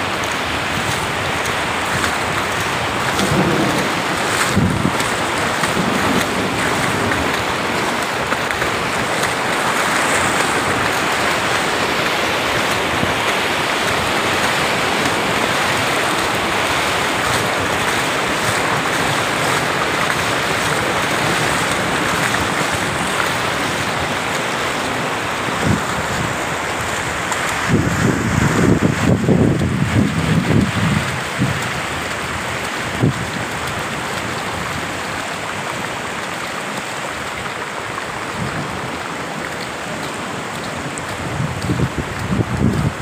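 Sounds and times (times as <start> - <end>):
floodwater rushing: 0.0 - 43.0.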